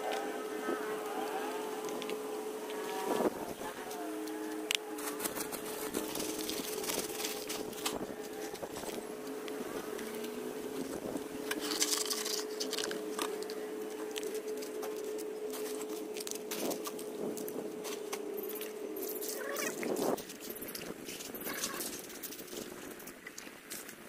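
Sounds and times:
stones and soil pouring onto soil: 11.5 - 13.6.

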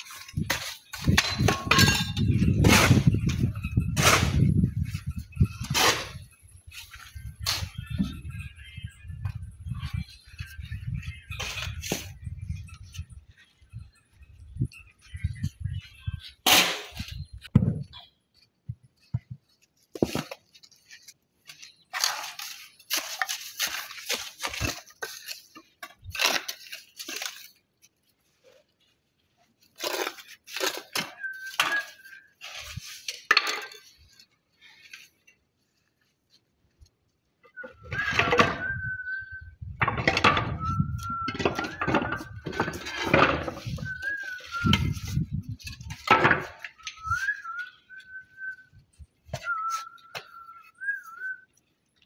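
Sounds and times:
shovel and trowel scraping mortar: 0.0 - 7.8.

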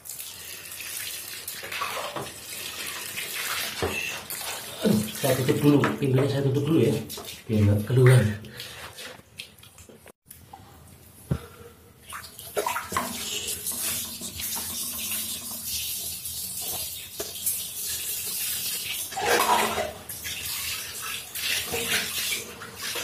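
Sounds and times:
water pouring onto tiled floor: 0.0 - 5.6, 12.1 - 23.0.

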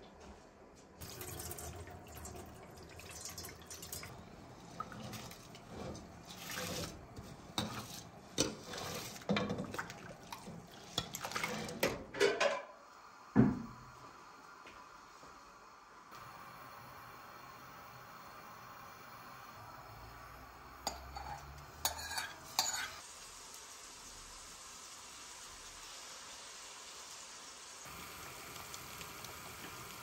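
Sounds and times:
water running at sink: 1.0 - 12.1, 16.1 - 30.0
water boiling: 1.0 - 30.0
metal ladle scraping bowl: 4.7 - 9.8, 10.4 - 12.0, 20.8 - 23.0.

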